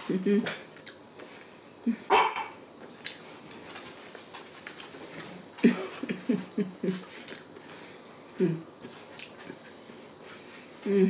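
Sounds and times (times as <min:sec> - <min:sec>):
dog barking: 0:02.1 - 0:02.6.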